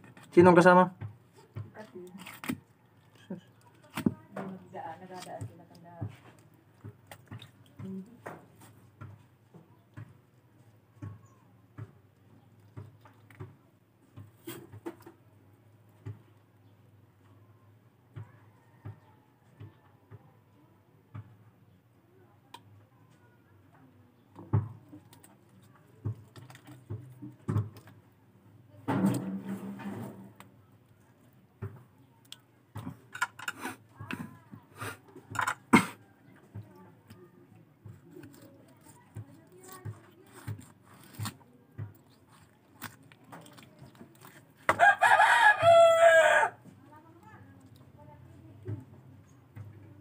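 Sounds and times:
knife scraping fish: 38.0s - 44.8s.

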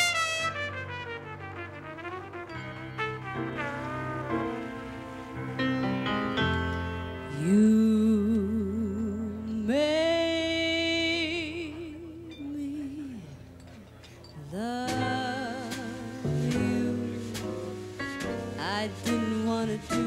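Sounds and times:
soft band accompaniment: 0.0s - 20.0s
woman singing jazz ballad: 7.2s - 13.5s, 14.4s - 20.0s.

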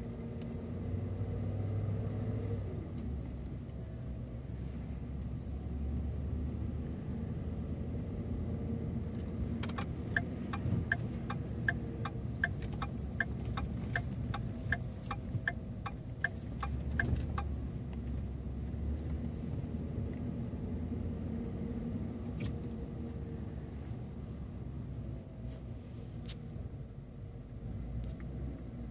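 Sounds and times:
truck driving rumble: 0.0s - 25.4s
turn signal clicking: 9.1s - 18.2s.

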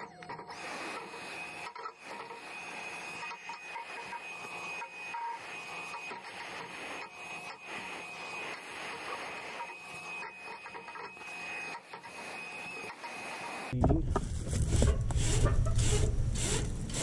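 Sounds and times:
vacuum whining: 0.0s - 13.8s
nozzle scraping and knocking metal: 13.8s - 17.0s.

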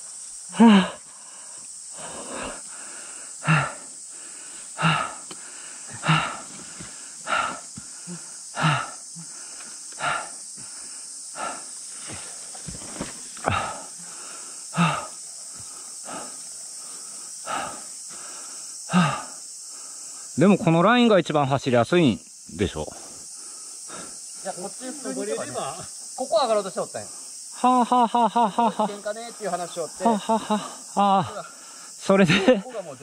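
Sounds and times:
steady high hiss: 0.0s - 33.0s
person panting heavily: 0.5s - 12.5s, 13.4s - 20.4s, 23.0s - 24.4s, 30.1s - 32.0s.

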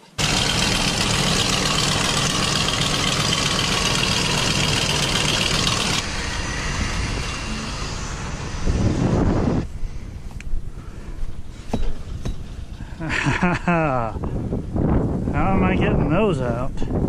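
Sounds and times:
truck engine idling: 0.0s - 13.6s.

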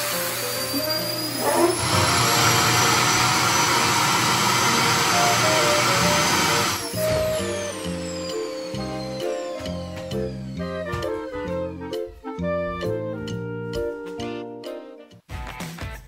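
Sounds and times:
vacuum cleaner running: 0.0s - 12.1s
background music: 0.1s - 16.0s.

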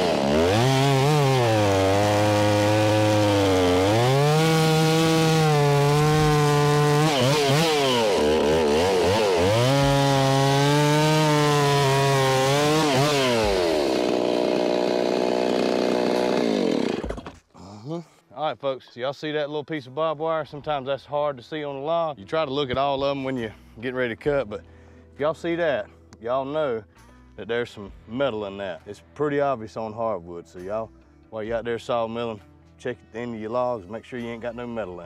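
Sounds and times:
chainsaw cutting log: 0.0s - 17.5s.

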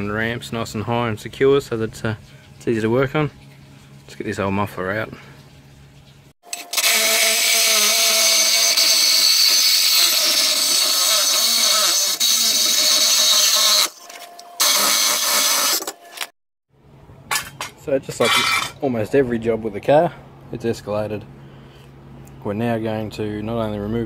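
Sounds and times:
power tool cutting metal pipe: 6.5s - 14.0s, 14.6s - 16.3s.

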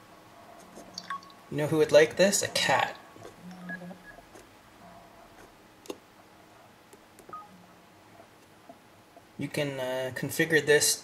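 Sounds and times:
smartphone key beeps: 1.0s - 1.4s.

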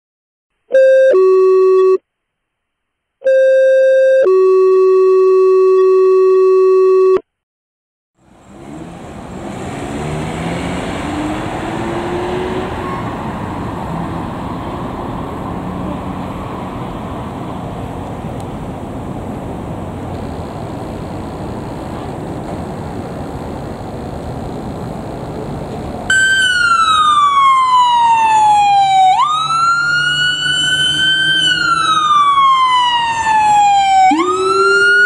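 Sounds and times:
electronic two-tone alert: 0.8s - 2.0s
vehicle engine rumble: 8.2s - 35.0s.

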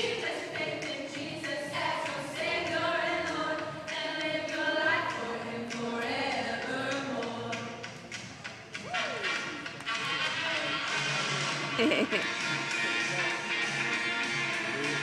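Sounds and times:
children's choir singing: 0.0s - 7.9s.

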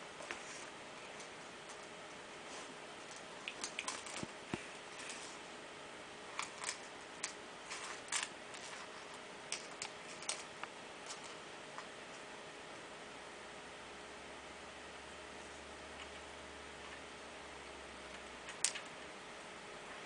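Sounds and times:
kitten paws clicking and rustling: 0.2s - 5.4s.

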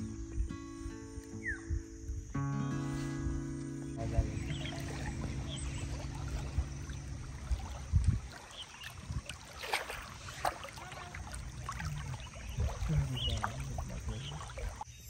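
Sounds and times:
water lapping along canoe: 0.0s - 15.0s
short splashes and knocks: 4.0s - 14.9s.

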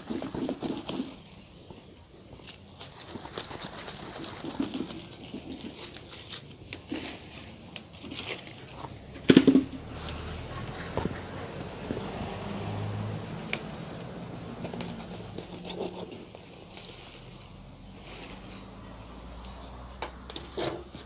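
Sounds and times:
root ball knocking apart: 9.2s - 9.8s.

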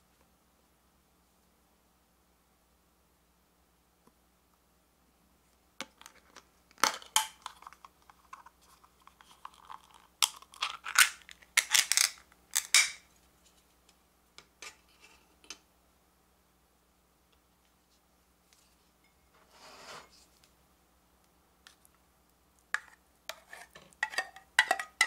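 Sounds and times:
tin lid clicking and tearing open: 5.9s - 7.9s, 9.1s - 13.0s.

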